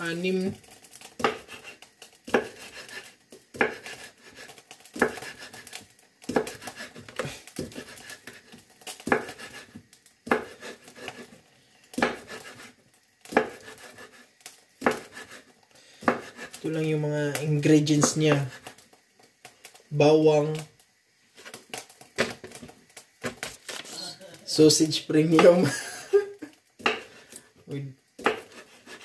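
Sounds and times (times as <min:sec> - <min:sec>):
knife scraping board: 0:00.6 - 0:16.7, 0:17.8 - 0:18.8, 0:26.8 - 0:27.5, 0:28.2 - 0:29.0
knife chopping on wooden board: 0:01.1 - 0:14.2, 0:14.8 - 0:16.6, 0:26.8 - 0:27.2, 0:28.2 - 0:29.0.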